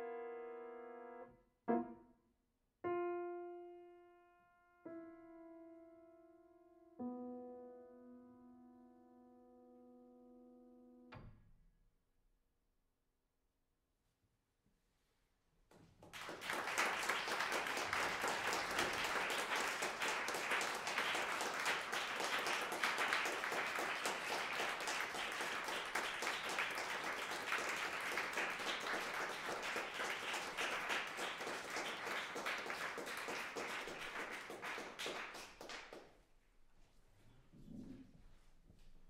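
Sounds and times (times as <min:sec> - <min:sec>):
audience applauding: 0:16.0 - 0:36.1.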